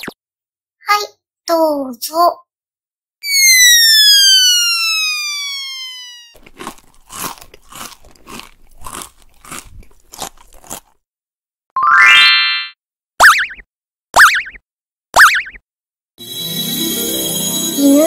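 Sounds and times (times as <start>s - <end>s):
cartoon falling whistle: 3.2s - 6.4s, 15.2s - 15.6s
crunchy munching: 6.3s - 11.0s.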